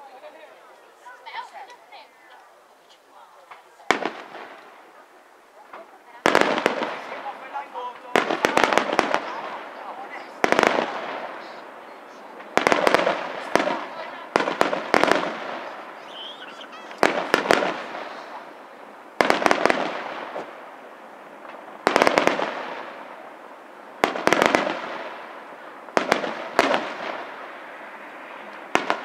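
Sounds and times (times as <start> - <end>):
firework shells bursting: 5.6 - 20.7, 24.0 - 29.0.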